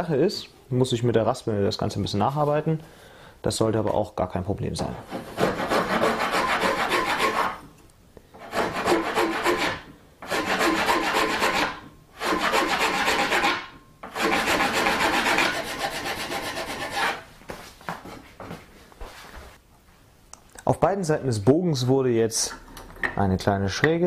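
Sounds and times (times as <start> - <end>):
metal file rasping on wood: 5.1 - 7.6, 8.4 - 17.2.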